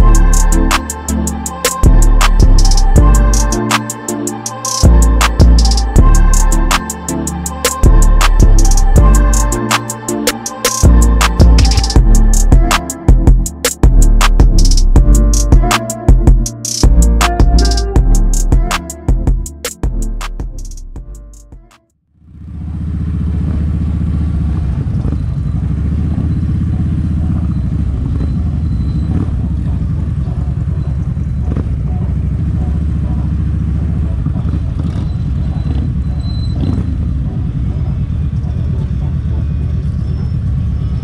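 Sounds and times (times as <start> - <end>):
motorcycle engine rumbling: 22.2 - 41.0.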